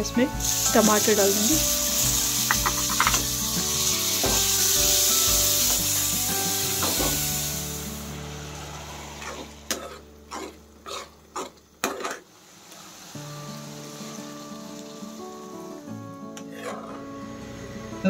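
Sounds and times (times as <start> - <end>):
faint background music: 0.0 - 12.2, 13.0 - 18.0
tomatoes sizzling in hot oil: 0.0 - 16.0
spoon knocking on pan: 2.5 - 3.2.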